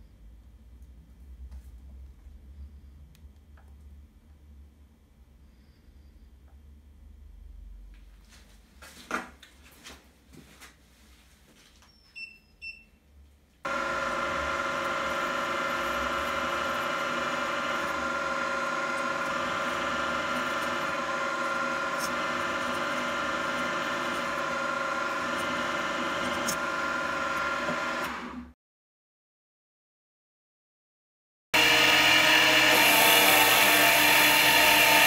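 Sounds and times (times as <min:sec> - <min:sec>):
drill whining into steel: 0:13.7 - 0:28.2, 0:31.6 - 0:35.0.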